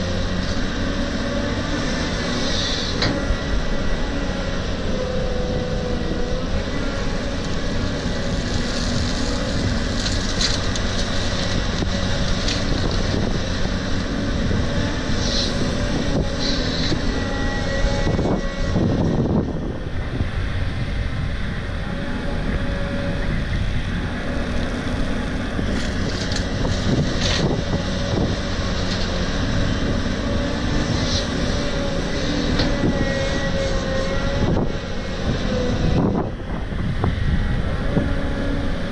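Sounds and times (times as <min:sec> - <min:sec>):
excavator diesel engine running: 0:00.0 - 0:38.9
soil and gravel clattering: 0:07.1 - 0:17.6, 0:24.5 - 0:34.2.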